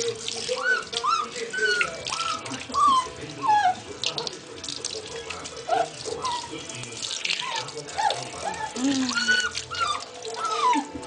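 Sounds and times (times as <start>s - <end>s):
tap water splashing: 0.0s - 11.0s
puppy whimpering: 0.5s - 3.9s, 5.6s - 6.6s, 7.4s - 11.0s.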